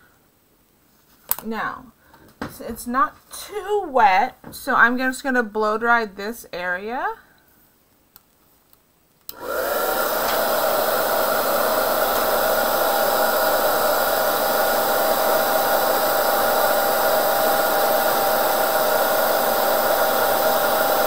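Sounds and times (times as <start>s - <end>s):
hair dryer switch click: 9.3s - 10.7s
hair dryer blowing: 9.3s - 21.0s.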